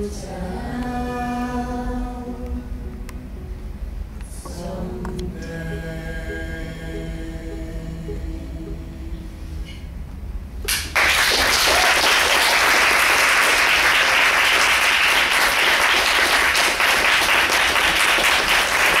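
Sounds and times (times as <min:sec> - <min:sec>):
audience applause: 0:10.7 - 0:19.0.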